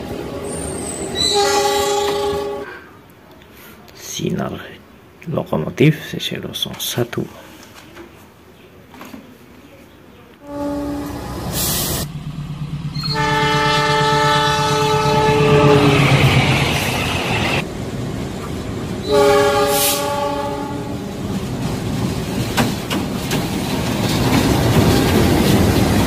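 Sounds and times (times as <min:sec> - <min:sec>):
train rumble and wheel clatter: 0:00.0 - 0:02.6, 0:10.4 - 0:26.0
locomotive horn blasts: 0:01.2 - 0:02.8, 0:10.4 - 0:12.1, 0:13.0 - 0:16.3, 0:19.0 - 0:21.1.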